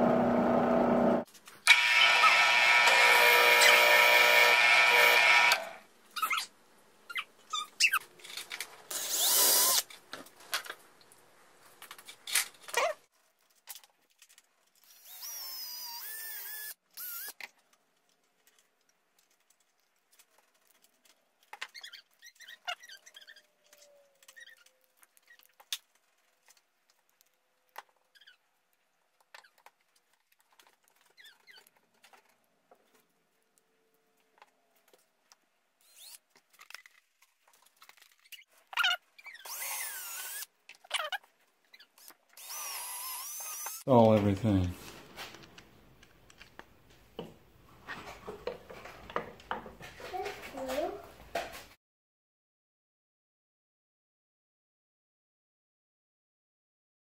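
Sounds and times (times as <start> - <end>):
cordless drill whine: 0.0 - 5.8, 14.9 - 17.3, 39.4 - 40.5, 42.4 - 43.9.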